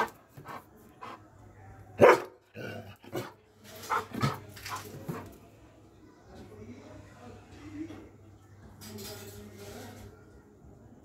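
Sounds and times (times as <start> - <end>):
dog barking: 2.0 - 2.4.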